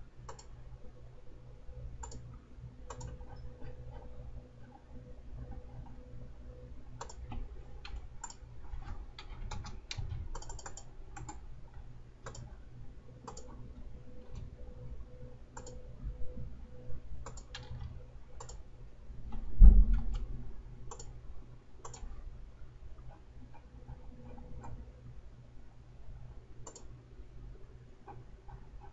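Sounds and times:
steady low hum: 0:00.0 - 0:28.9
computer mouse clicking: 0:00.2 - 0:00.6, 0:02.0 - 0:02.3, 0:02.9 - 0:04.1, 0:07.0 - 0:12.6, 0:13.2 - 0:13.6, 0:15.5 - 0:15.8, 0:17.2 - 0:18.6, 0:20.9 - 0:21.2, 0:21.8 - 0:22.2, 0:23.1 - 0:24.9, 0:26.6 - 0:27.0
dull low thump: 0:19.6 - 0:20.2.

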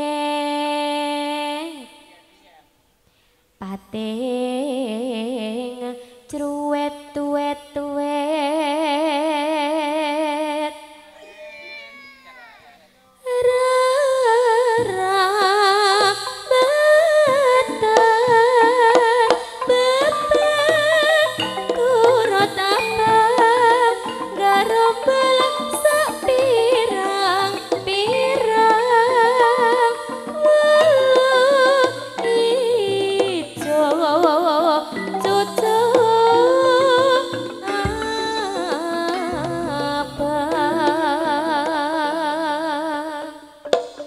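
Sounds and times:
woman singing with vibrato: 0:00.0 - 0:02.2, 0:03.6 - 0:11.2, 0:13.2 - 0:43.7
hand drum strokes: 0:14.4 - 0:42.8
gamelan ringing tones: 0:19.4 - 0:33.8, 0:34.9 - 0:42.2.

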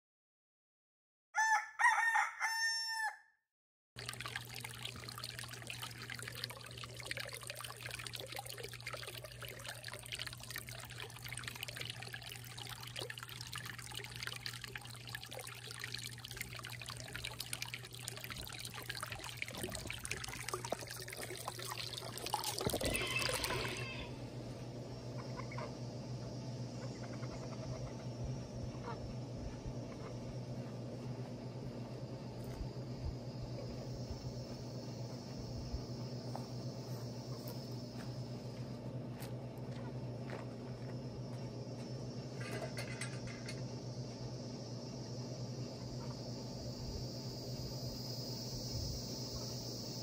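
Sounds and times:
rooster crowing: 0:01.4 - 0:03.4, 0:22.8 - 0:24.2
stream trickling over rocks: 0:04.0 - 0:23.9
outdoor ambience: 0:04.0 - 0:50.0.

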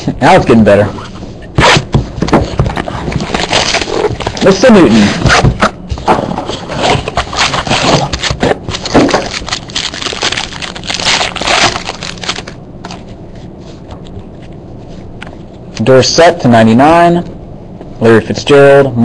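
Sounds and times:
packaging rustling and tearing: 0:01.6 - 0:13.2.

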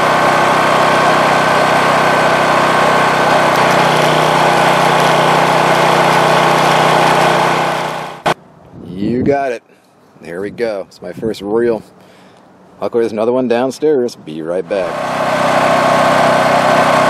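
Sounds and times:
welding arc crackling buzz: 0:00.8 - 0:08.4.

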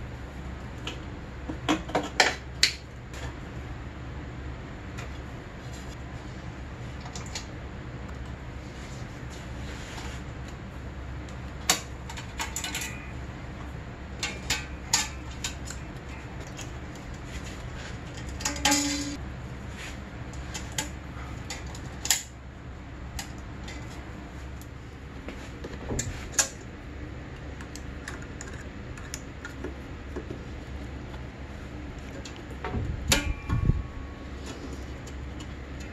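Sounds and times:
steady low hum: 0:00.0 - 0:35.9
metallic rattle: 0:18.1 - 0:19.2.

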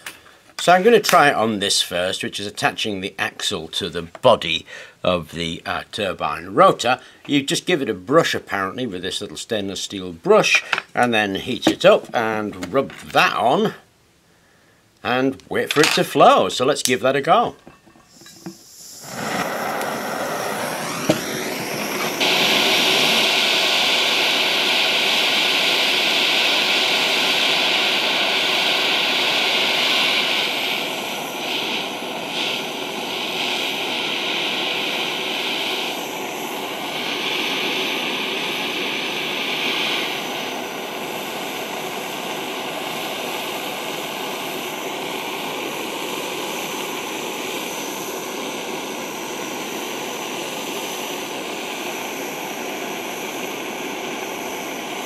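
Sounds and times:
blowtorch flame burning: 0:17.6 - 0:55.0.

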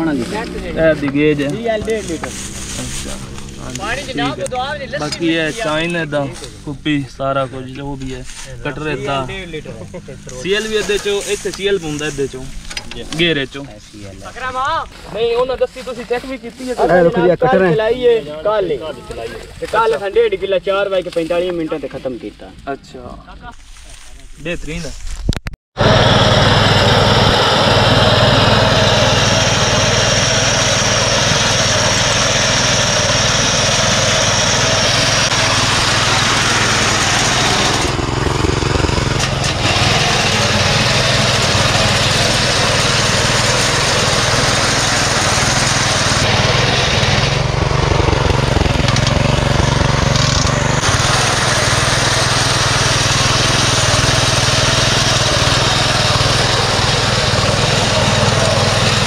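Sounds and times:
small petrol engine running: 0:00.0 - 0:14.7, 0:25.8 - 0:59.0.

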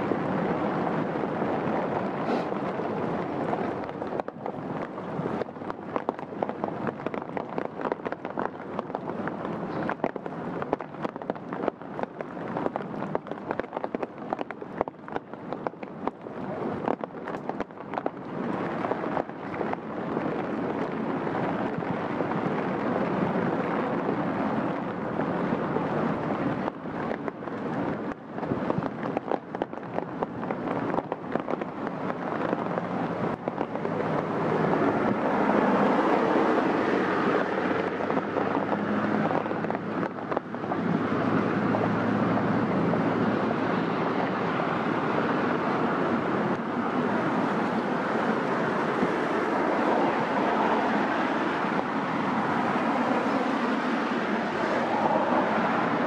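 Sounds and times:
steady rain hiss: 0:00.0 - 0:28.6, 0:29.6 - 0:56.0
raindrop ticks: 0:01.9 - 0:22.8, 0:26.6 - 0:42.2.

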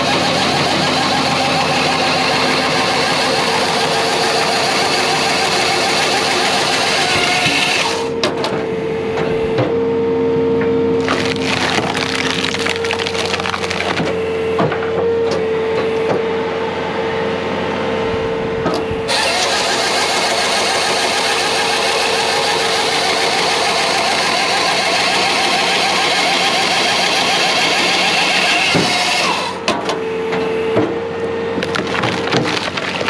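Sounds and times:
engine running under load: 0:00.0 - 0:33.0
hydraulic whine: 0:00.0 - 0:33.0
wood cracking and splintering: 0:11.0 - 0:14.2, 0:31.5 - 0:33.0.

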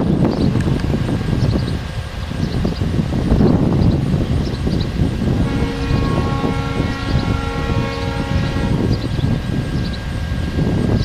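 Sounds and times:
wind rumble on microphone: 0:00.0 - 0:11.0
horn chord: 0:05.4 - 0:09.1.

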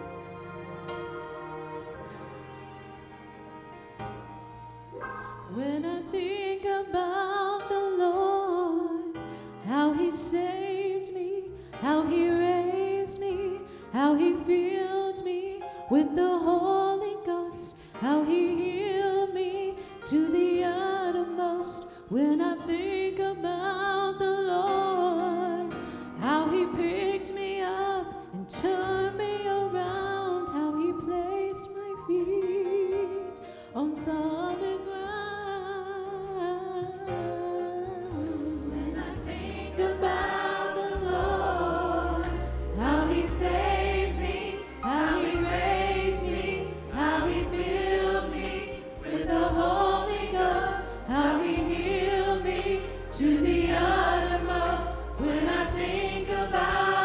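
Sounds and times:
soft instrumental accompaniment: 0:00.0 - 0:57.0
woman singing gospel song: 0:05.5 - 0:33.2.

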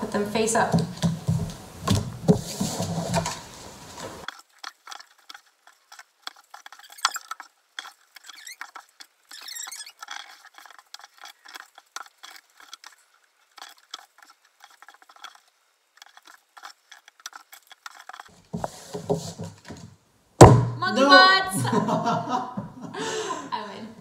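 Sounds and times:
playing cards dealt on a table: 0:18.2 - 0:19.9.

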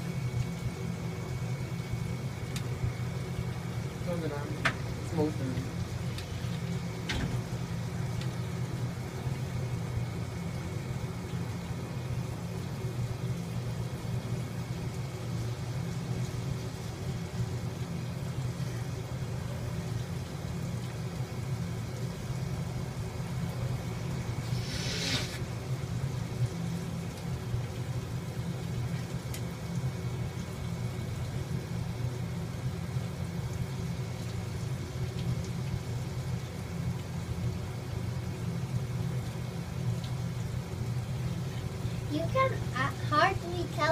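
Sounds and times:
short hiss: 0:24.4 - 0:25.5
low background rumble: 0:38.3 - 0:43.9.

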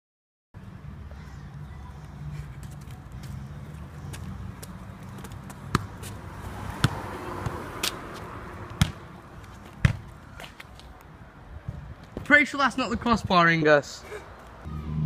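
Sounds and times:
football thudding on tarmac: 0:05.2 - 0:06.1, 0:06.8 - 0:08.0, 0:08.8 - 0:10.6.

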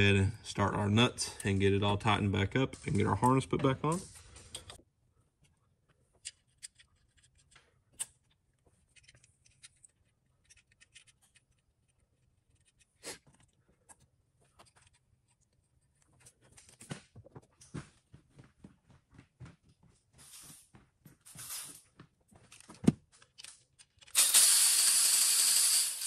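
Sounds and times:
metal parts clicking and scraping: 0:02.7 - 0:04.8, 0:06.2 - 0:15.4, 0:22.5 - 0:26.0.

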